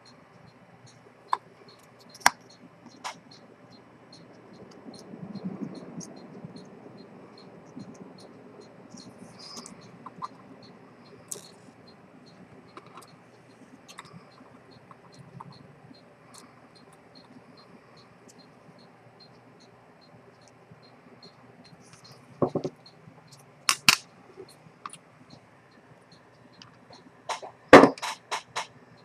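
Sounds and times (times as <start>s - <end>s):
watch ticking: 0.0s - 29.0s
sharp knocks: 22.4s - 22.8s, 27.3s - 28.7s.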